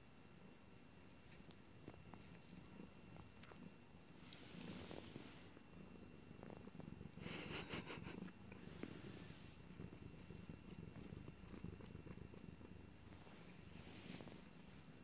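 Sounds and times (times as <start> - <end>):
cat purring: 0.0 - 15.0.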